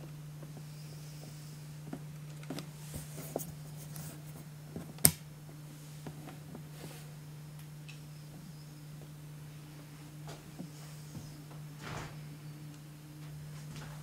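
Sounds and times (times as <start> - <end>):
low hum: 0.0 - 14.0.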